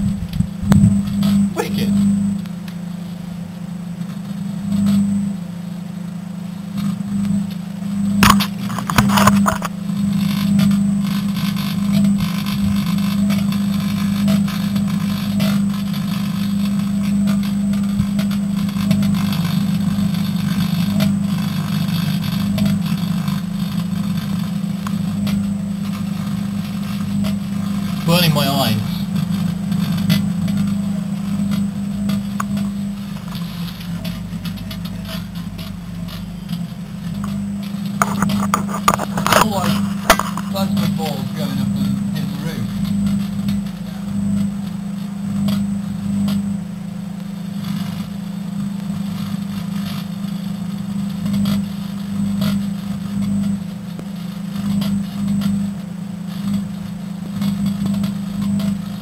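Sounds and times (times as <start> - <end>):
microwave oven humming: 0.0 - 59.0
metal arcing crackling: 8.2 - 46.6.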